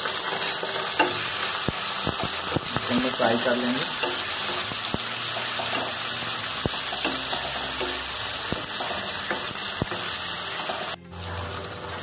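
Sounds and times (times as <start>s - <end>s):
tomatoes sizzling in hot oil: 0.0s - 12.0s.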